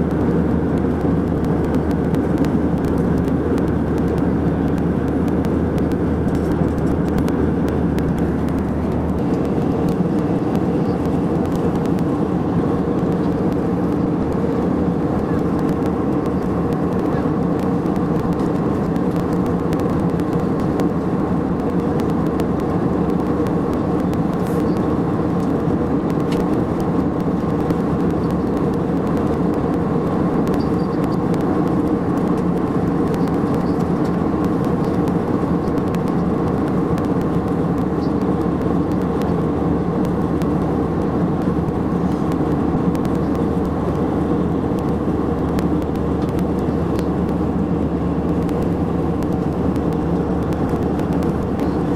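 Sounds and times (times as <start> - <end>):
jet airliner cabin drone: 0.0 - 51.9.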